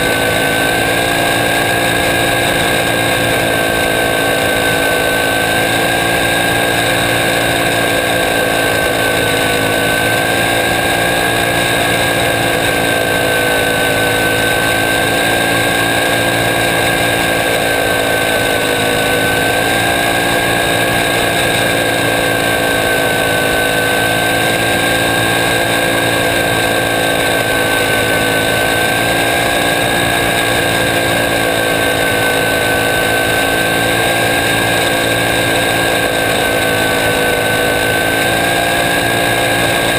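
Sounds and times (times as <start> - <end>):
race car engine at high revs: 0.0 - 39.9.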